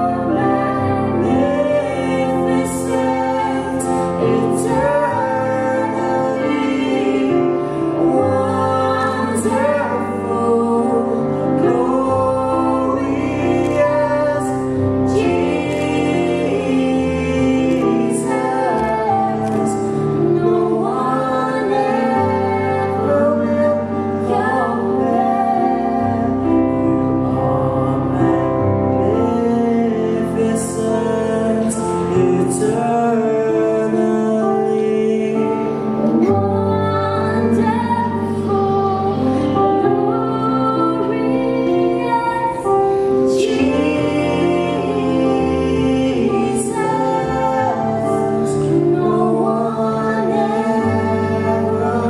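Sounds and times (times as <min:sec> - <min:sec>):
man and woman singing duet: 0:00.0 - 0:52.0.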